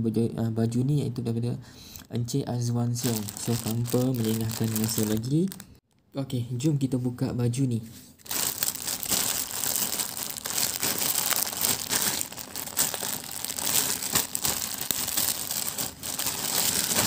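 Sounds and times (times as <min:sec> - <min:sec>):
plastic bag crinkling: 0:02.8 - 0:05.8, 0:08.2 - 0:17.0.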